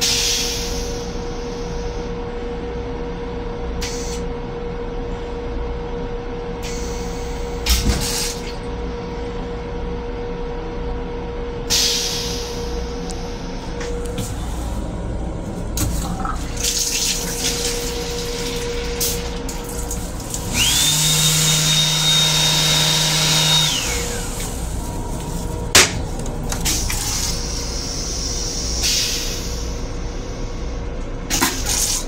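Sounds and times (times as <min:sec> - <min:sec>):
rail car rumble: 0:00.0 - 0:20.9, 0:23.4 - 0:31.4
pump humming whine: 0:00.0 - 0:32.0
faucet water pouring into basin: 0:16.5 - 0:21.7.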